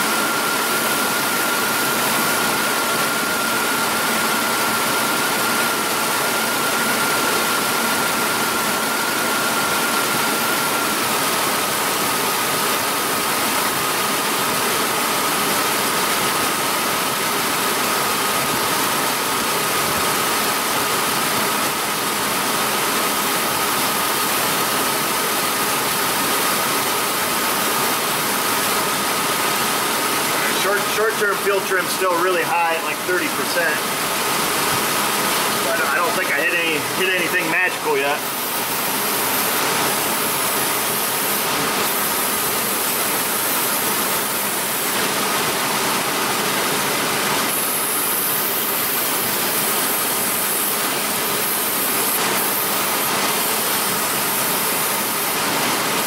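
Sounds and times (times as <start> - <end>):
engine idling with misfire: 0.0 - 56.0
thin whine: 30.3 - 40.7.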